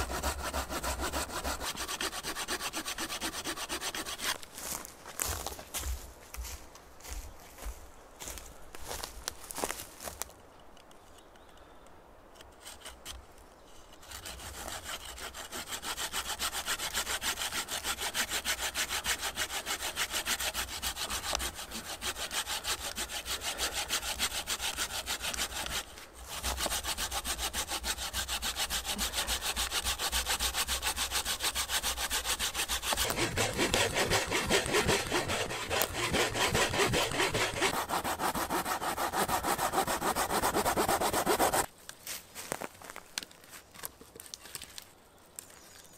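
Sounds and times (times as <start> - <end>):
saw cutting wood: 0.0 - 4.4, 14.0 - 41.7.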